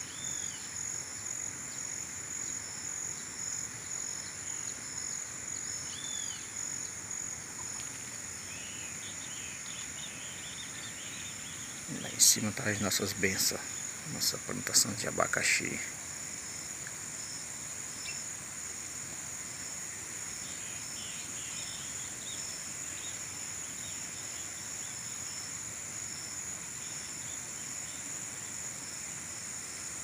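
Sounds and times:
insects chirring: 0.0 - 30.0
steady background hiss: 0.0 - 30.0.

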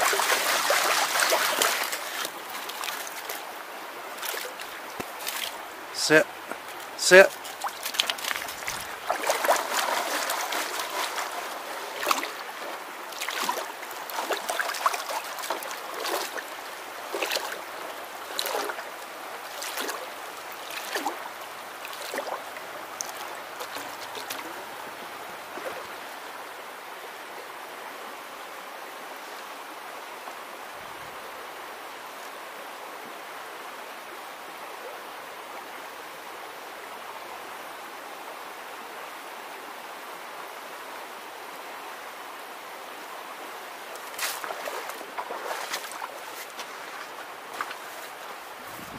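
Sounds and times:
water splashing and sloshing in pan: 0.0 - 3.4, 6.7 - 16.5, 17.1 - 17.6, 18.2 - 18.9, 19.5 - 22.4, 44.0 - 48.2
stream running: 0.0 - 48.9.

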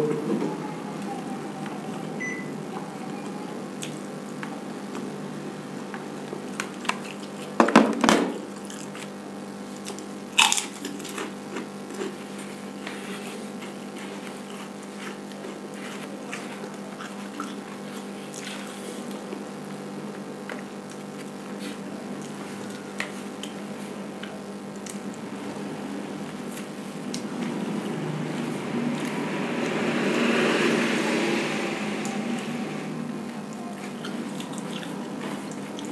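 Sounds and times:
steady electrical hum: 0.0 - 35.9
chewing crunches and clicks: 8.6 - 9.2, 9.8 - 13.0, 33.5 - 35.9.

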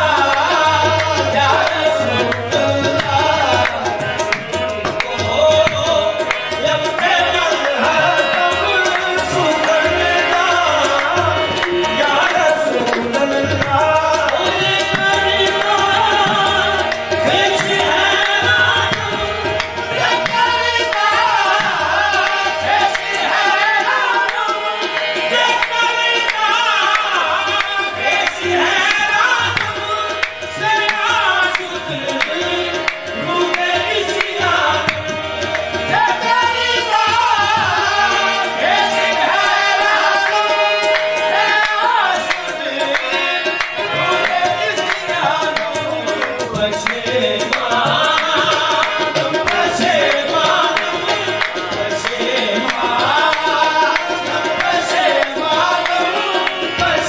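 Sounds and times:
man singing devotional song: 0.0 - 57.0
tabla playing: 0.0 - 57.0.

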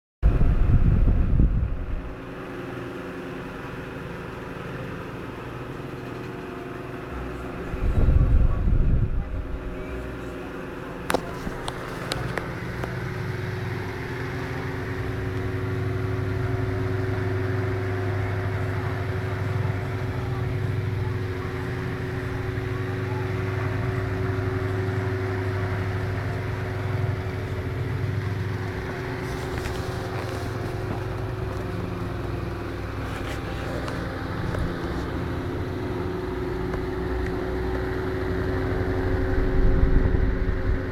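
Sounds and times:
fan motor humming: 0.2 - 40.9.

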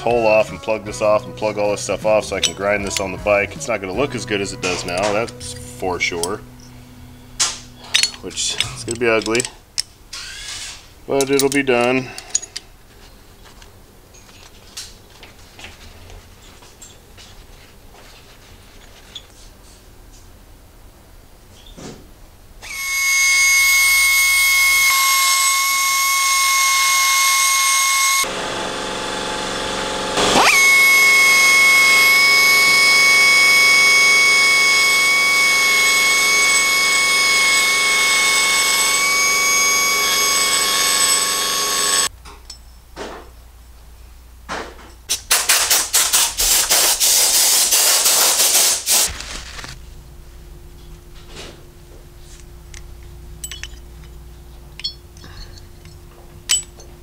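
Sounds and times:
die grinder whining: 22.6 - 42.1.

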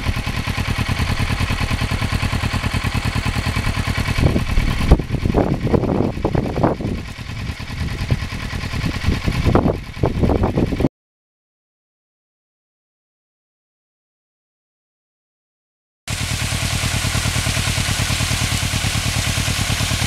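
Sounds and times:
motorcycle engine idling: 0.0 - 10.9, 16.1 - 20.0.

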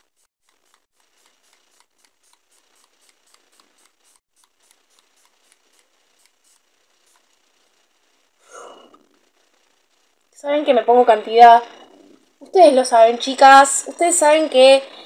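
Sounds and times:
spray bottle spritzing: 0.0 - 7.3.

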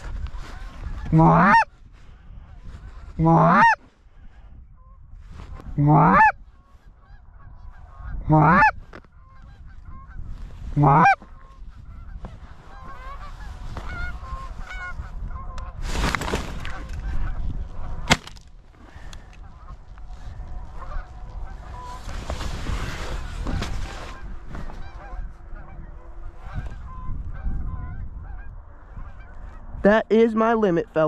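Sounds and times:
geese honking: 0.4 - 1.8, 2.4 - 3.9, 5.7 - 15.8, 16.6 - 29.7
goose call honks: 0.5 - 1.7, 3.0 - 3.8, 5.8 - 6.4, 7.0 - 10.2, 10.8 - 15.6
rustle: 20.0 - 24.9.

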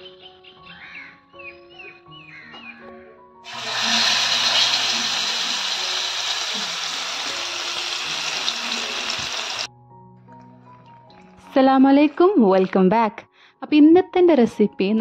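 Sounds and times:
fish sizzling in hot oil: 3.4 - 9.7.

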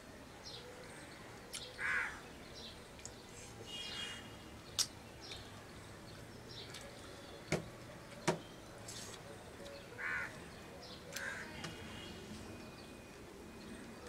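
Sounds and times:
crow cawing: 1.8 - 2.2, 10.0 - 10.4, 11.1 - 12.1.

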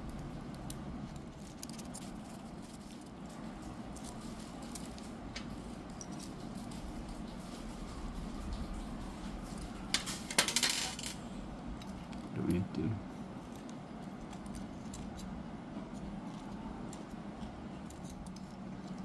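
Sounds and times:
low steady hum: 0.0 - 19.0
metal parts clinking: 9.9 - 11.2.

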